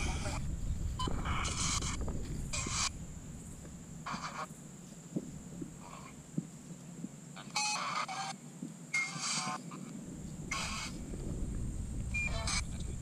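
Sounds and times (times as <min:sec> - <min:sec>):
bird harsh calls: 0:00.0 - 0:03.0, 0:04.0 - 0:04.8, 0:05.7 - 0:06.3, 0:09.0 - 0:13.0.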